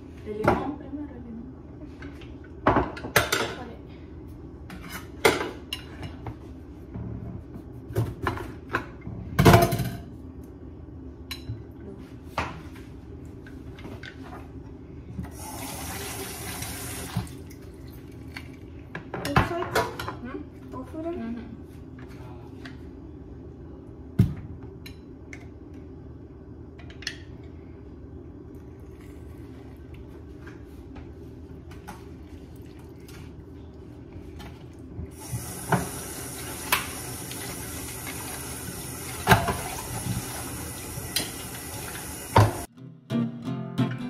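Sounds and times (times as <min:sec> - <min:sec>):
tap running into metal sink: 0:39.2 - 0:42.7.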